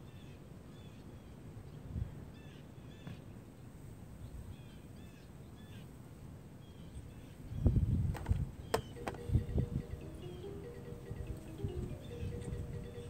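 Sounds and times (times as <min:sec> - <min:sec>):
birds chirping faintly: 0:06.5 - 0:13.0.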